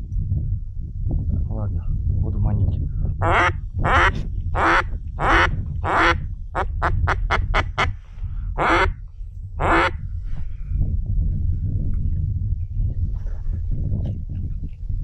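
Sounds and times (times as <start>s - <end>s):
low rumble: 0.0s - 15.0s
duck call quacks: 3.2s - 7.9s, 8.6s - 9.0s, 9.6s - 10.0s.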